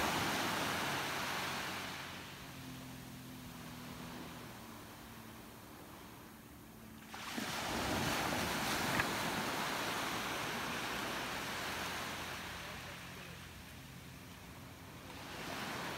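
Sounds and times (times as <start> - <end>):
wave washing on shore: 0.0 - 15.9.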